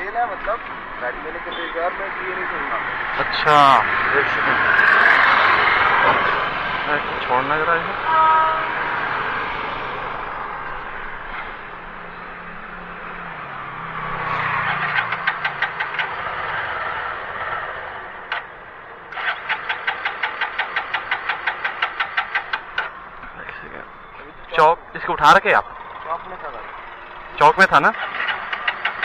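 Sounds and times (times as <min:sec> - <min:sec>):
engine cranked by starter: 0:14.4 - 0:17.7, 0:19.1 - 0:24.3, 0:25.0 - 0:29.0.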